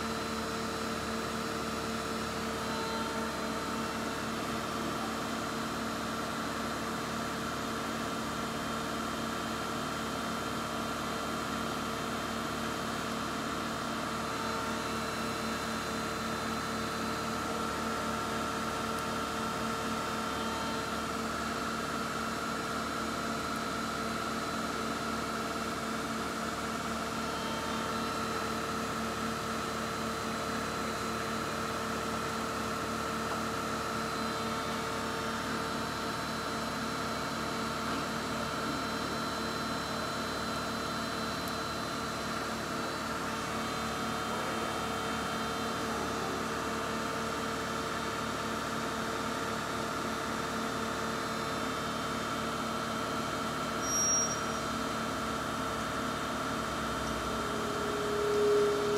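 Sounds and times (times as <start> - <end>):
whining drive tones: 53.8 - 58.9
milling machine humming: 54.4 - 58.9.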